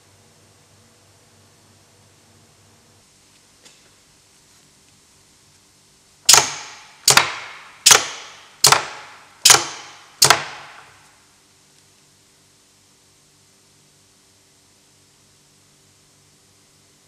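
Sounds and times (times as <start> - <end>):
magnet switch clacks: 6.3 - 10.8.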